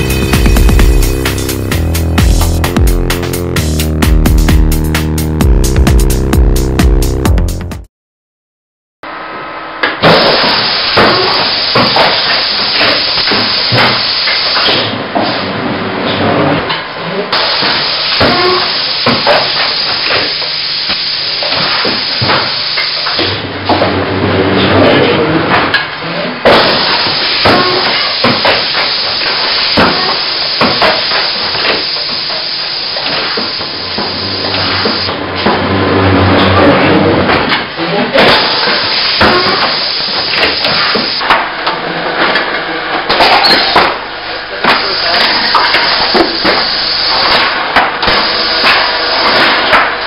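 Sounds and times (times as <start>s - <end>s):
pneumatic hissing: 26.5s - 35.1s, 44.6s - 49.7s.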